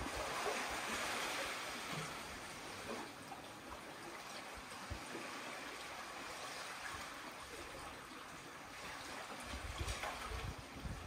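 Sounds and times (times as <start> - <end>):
small waves lapping on sand: 0.0 - 11.0.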